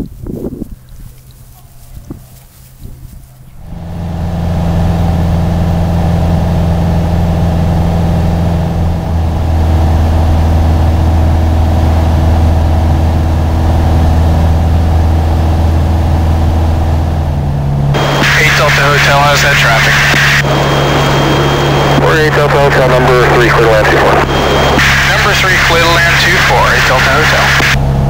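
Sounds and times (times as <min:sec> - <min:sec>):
propeller airplane engine droning: 0:00.0 - 0:28.0.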